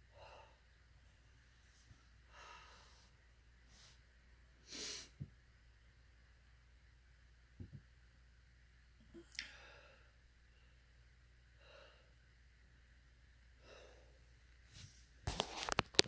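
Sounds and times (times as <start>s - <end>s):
faint breaths: 0.0s - 5.3s, 9.1s - 12.4s, 13.5s - 15.2s.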